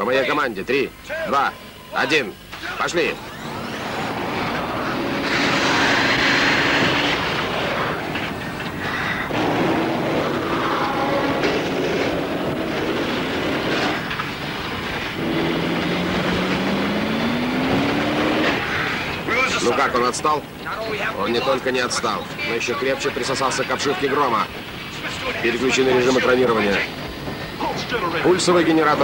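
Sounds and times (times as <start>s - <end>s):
speedboat engine drone: 3.0s - 21.0s
sharp cracks: 4.0s - 19.3s.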